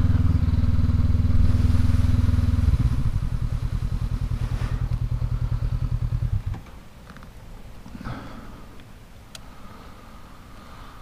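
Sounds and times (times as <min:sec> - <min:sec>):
motorcycle engine idling: 0:00.0 - 0:06.9.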